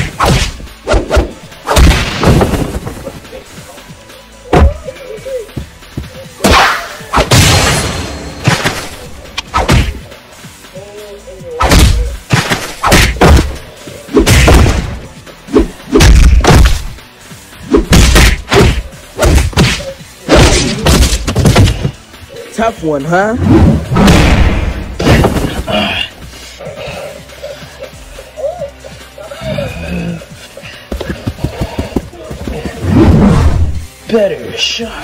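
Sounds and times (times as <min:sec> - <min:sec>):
punch and thud hits: 0:00.0 - 0:03.0, 0:06.4 - 0:08.9, 0:09.5 - 0:10.0, 0:11.6 - 0:13.6, 0:14.2 - 0:15.0, 0:15.9 - 0:16.9, 0:17.8 - 0:22.0, 0:23.6 - 0:25.7
background music: 0:00.0 - 0:35.0.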